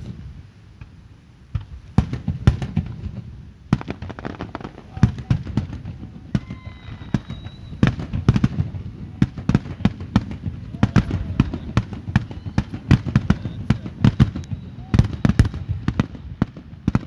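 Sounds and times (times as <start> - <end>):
firework shells bursting: 0.8 - 17.0
high steady whistle: 6.4 - 8.2, 10.6 - 16.5.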